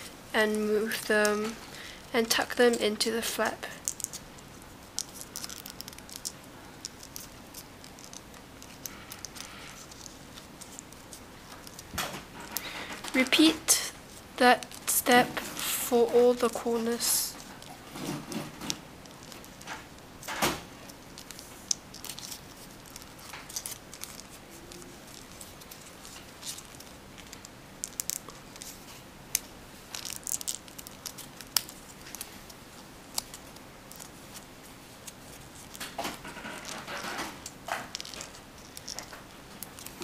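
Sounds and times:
paper crinkling and rustling: 14.1s - 40.0s
crisp paper crackles: 20.8s - 40.0s.

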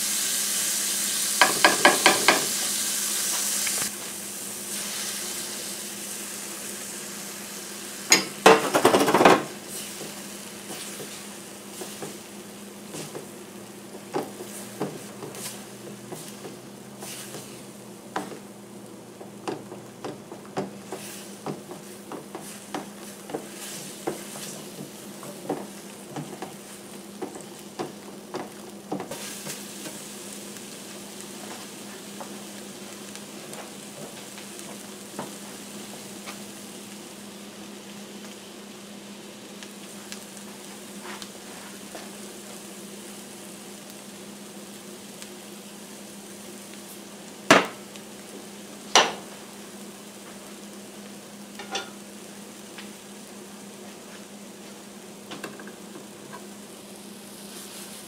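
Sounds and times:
food sizzling in a pan: 0.0s - 58.0s
spatula tapping a pan: 1.4s - 2.5s, 14.1s - 16.6s, 18.1s - 18.4s, 19.2s - 29.1s.

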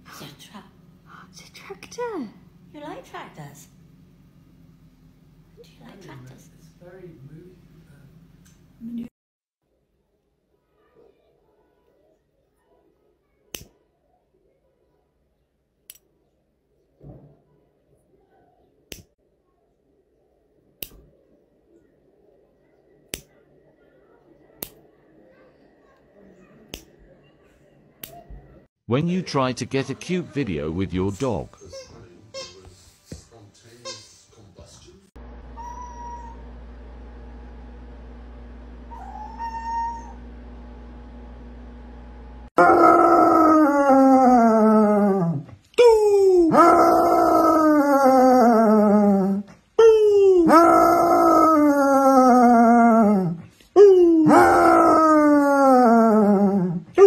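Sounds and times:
puppy whining: 35.4s - 36.6s, 38.8s - 40.3s
dog howling: 35.5s - 36.5s, 38.9s - 40.3s, 42.6s - 57.0s.

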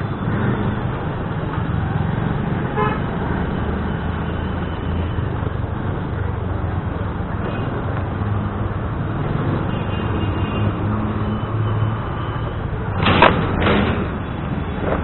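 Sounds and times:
road noise: 0.0s - 15.0s
wheels clattering over bump: 12.9s - 15.0s.

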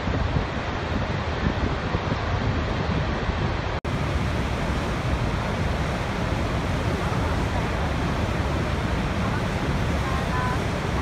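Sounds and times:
wind buffeting microphone: 0.0s - 11.0s
waterfall rushing: 3.8s - 11.0s.

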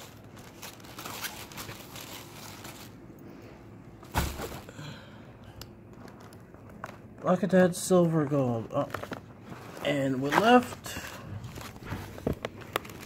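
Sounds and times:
packaging rustling and scraping: 0.0s - 3.1s, 5.9s - 13.0s.

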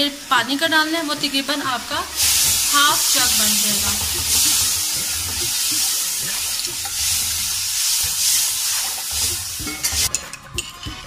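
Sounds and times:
water sizzling in hot fat: 0.0s - 11.0s
wooden spoon stirring in metal pan: 2.2s - 11.0s.

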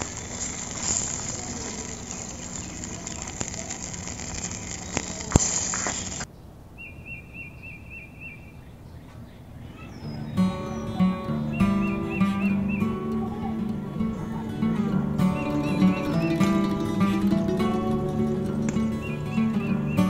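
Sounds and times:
curry sizzling in a pan: 0.0s - 6.3s
repeated chirping call: 0.0s - 13.8s, 15.2s - 18.0s, 18.8s - 20.0s
acoustic guitar music: 9.9s - 20.0s.

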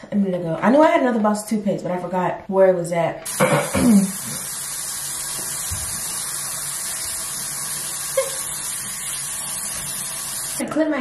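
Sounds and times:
tap running: 3.2s - 10.6s.

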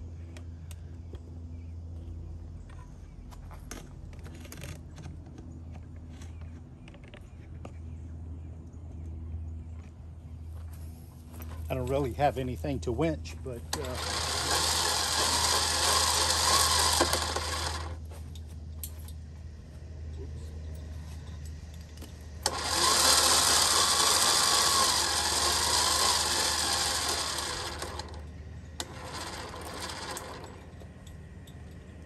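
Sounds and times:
electric winch motor whining: 13.7s - 18.0s, 22.4s - 31.1s.

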